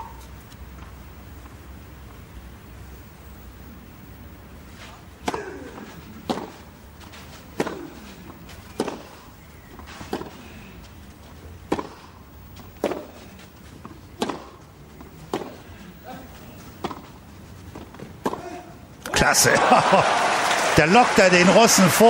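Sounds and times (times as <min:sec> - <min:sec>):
tennis ball hits: 0:04.9 - 0:06.7, 0:07.5 - 0:09.2, 0:09.8 - 0:10.4, 0:11.6 - 0:13.2, 0:13.8 - 0:16.2, 0:16.8 - 0:17.1, 0:17.8 - 0:19.2.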